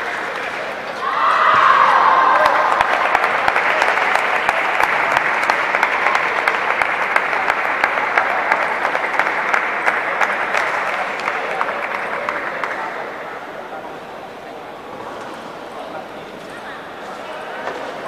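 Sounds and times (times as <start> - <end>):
spectators applauding: 1.8 - 13.1.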